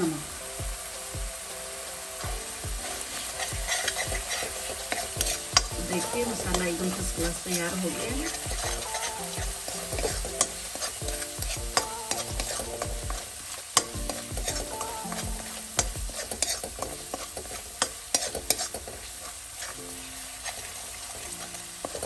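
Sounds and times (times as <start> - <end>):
sauce sizzling in a pan: 0.0 - 22.0
ladle scraping metal pan: 2.8 - 11.0, 16.1 - 22.0.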